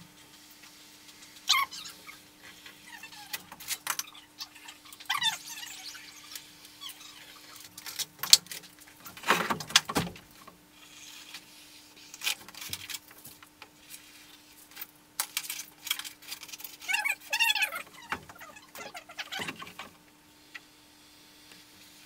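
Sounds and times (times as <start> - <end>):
faint steady hum: 0.0 - 22.0
foam squeaking: 1.5 - 7.8, 16.6 - 19.8.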